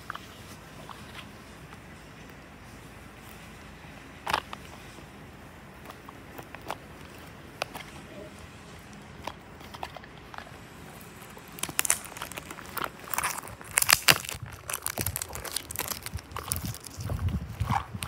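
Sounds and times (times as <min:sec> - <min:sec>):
plastic wrapping crinkling: 0:08.8 - 0:18.0.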